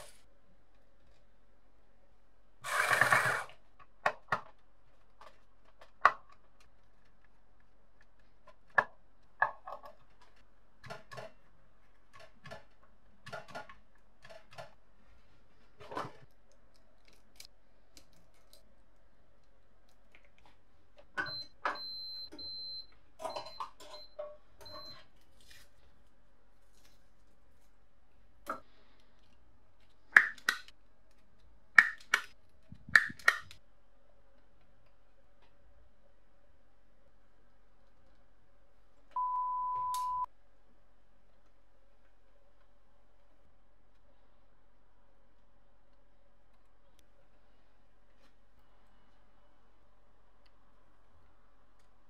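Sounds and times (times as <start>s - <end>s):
faint thin high tone: 39.2s - 40.3s.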